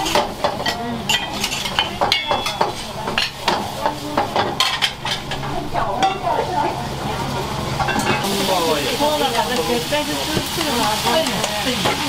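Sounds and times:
metal utensils clinking on pans: 0.0 - 12.0.

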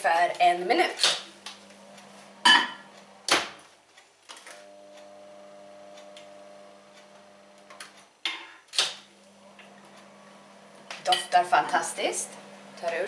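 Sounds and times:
microwave oven humming: 1.3 - 3.3, 4.5 - 8.0, 9.0 - 13.0.

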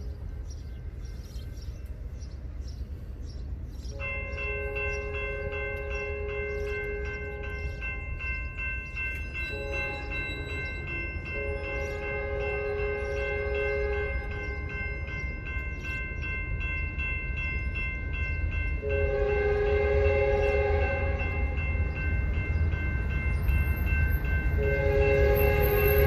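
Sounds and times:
distant train horn blasts: 3.9 - 8.0, 9.4 - 15.0, 18.8 - 22.0, 24.5 - 26.0
electronic crossing bell ringing: 4.0 - 26.0.

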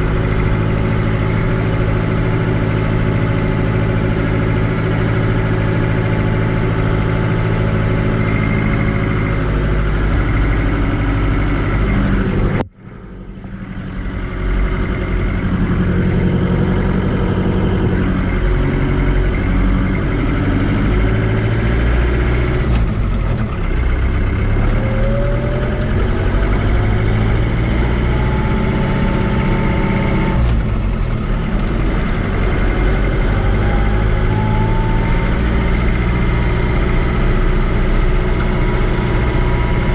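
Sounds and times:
tractor diesel engine running: 0.0 - 39.9
whine rising in pitch: 31.8 - 37.5.

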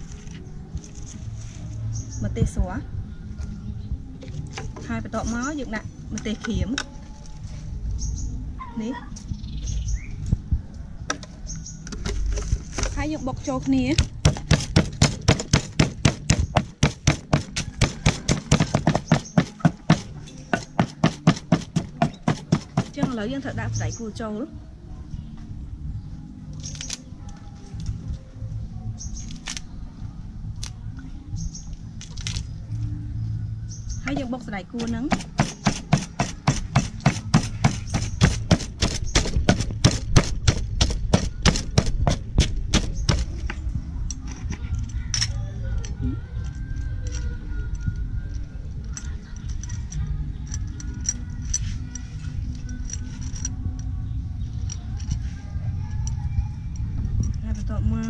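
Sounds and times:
pestle pounding in mortar: 14.0 - 23.3, 35.1 - 43.5.

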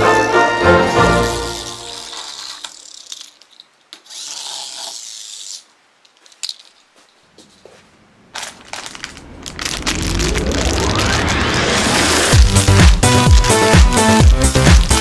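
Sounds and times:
foil wrapper crinkling: 8.4 - 13.6
rising sweep: 9.1 - 14.1
electronic music: 10.0 - 15.0.

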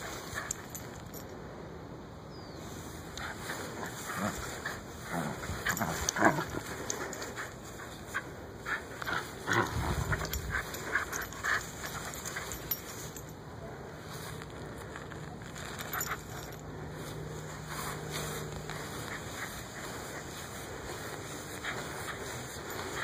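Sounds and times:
dog growling: 3.5 - 7.4, 9.0 - 11.3.

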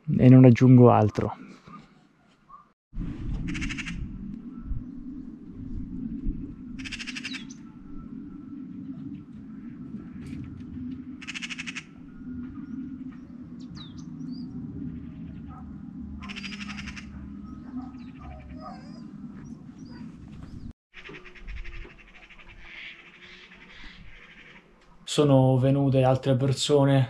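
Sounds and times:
birds chirping and calling: 3.3 - 5.4, 6.0 - 25.0
buzzy bird trill: 6.6 - 20.0.

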